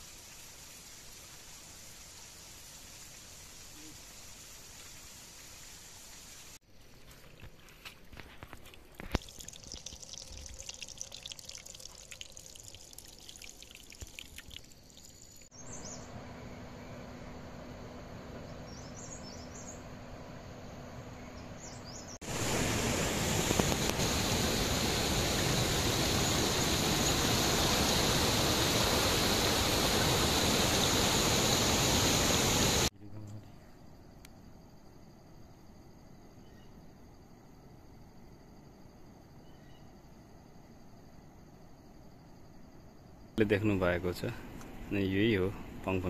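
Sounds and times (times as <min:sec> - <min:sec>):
water trickling with light splashes: 0:00.0 - 0:15.5
water rushing: 0:08.8 - 0:15.2, 0:22.2 - 0:32.9.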